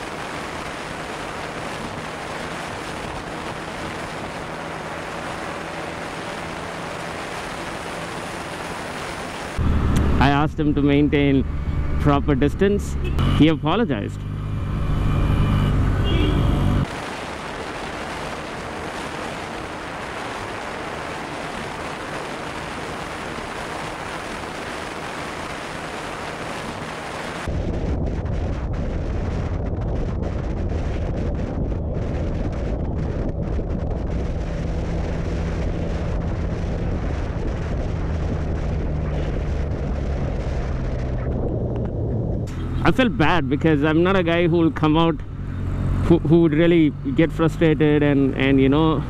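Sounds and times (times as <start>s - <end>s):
wind on microphone: 0.0s - 10.2s, 15.8s - 42.6s
motorcycle engine cruising: 0.0s - 49.0s.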